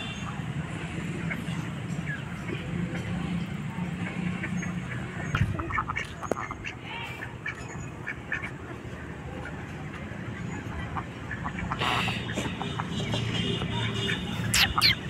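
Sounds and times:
ducks quacking: 0:04.0 - 0:09.7, 0:10.3 - 0:15.0.

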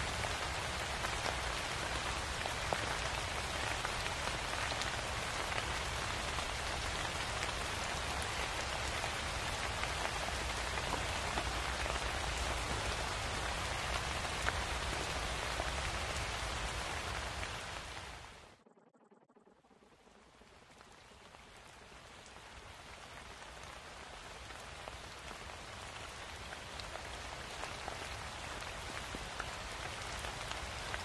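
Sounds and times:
raindrop ticks: 0:00.0 - 0:18.0
steady rain: 0:00.0 - 0:18.6, 0:19.7 - 0:31.0.

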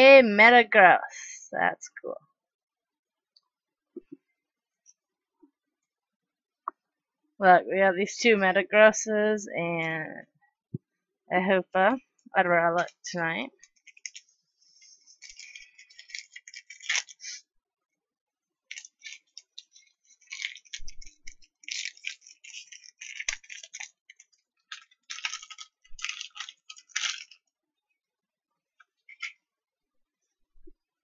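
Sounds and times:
foil wrapper crinkling: 0:13.6 - 0:17.4, 0:18.7 - 0:27.5, 0:29.1 - 0:29.4.

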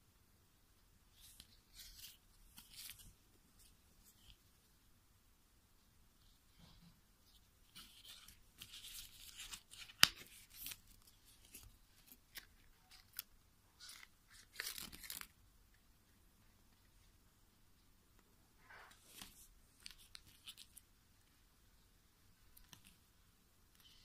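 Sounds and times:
sharp paper snap: 0:09.4 - 0:10.8
paper tearing and rustling: 0:13.8 - 0:15.3.

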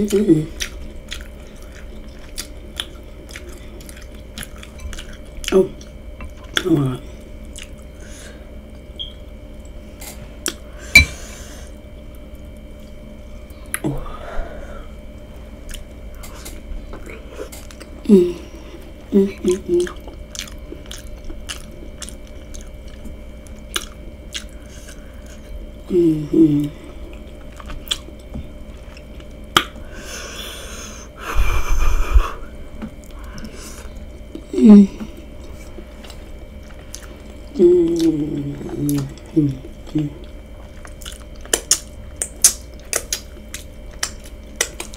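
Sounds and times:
person humming: 0:00.0 - 0:00.6, 0:13.8 - 0:14.8, 0:18.0 - 0:20.0, 0:25.8 - 0:26.9, 0:34.4 - 0:35.2, 0:37.5 - 0:40.2
person chewing: 0:00.0 - 0:13.9, 0:15.2 - 0:25.8, 0:26.4 - 0:29.9, 0:31.8 - 0:44.9.

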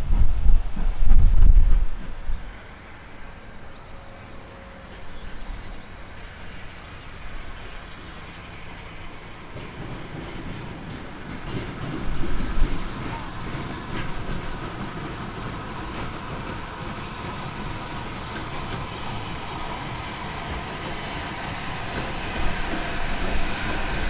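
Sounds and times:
steam locomotive rumble: 0:00.0 - 0:24.0
wheels clicking on rails: 0:04.8 - 0:24.0.

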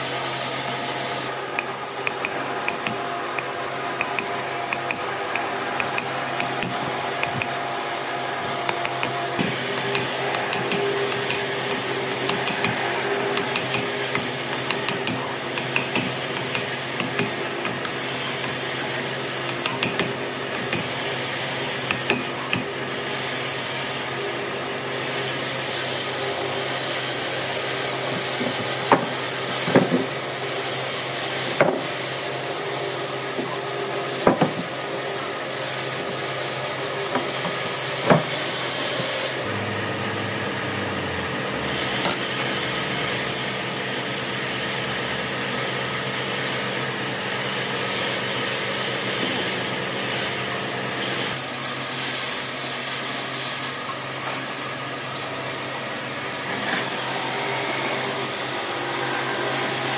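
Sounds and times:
chisel scraping wood: 0:00.4 - 0:23.8
mallet knocking on chisel: 0:01.6 - 0:07.6, 0:08.7 - 0:17.8, 0:19.5 - 0:20.9, 0:21.9 - 0:22.7, 0:34.2 - 0:34.7.

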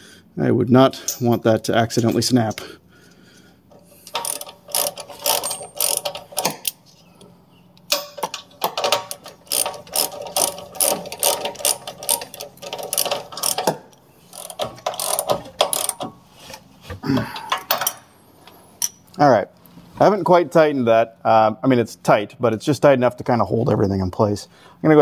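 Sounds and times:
socket ratchet clicking: 0:04.0 - 0:06.8, 0:07.8 - 0:16.1.

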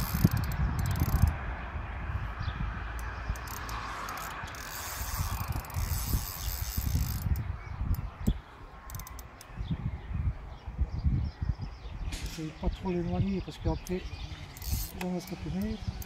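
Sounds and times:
fishing reel clicking and whirring: 0:00.0 - 0:01.4, 0:03.0 - 0:08.0, 0:08.9 - 0:09.5, 0:14.6 - 0:16.0
wind buffeting microphone: 0:00.0 - 0:16.0.

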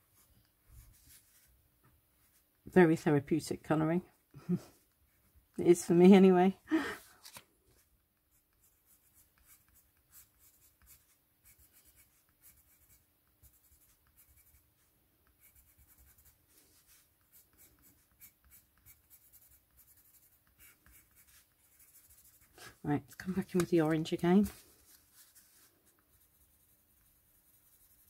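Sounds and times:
pencil scratching on card: 0:08.3 - 0:28.0.

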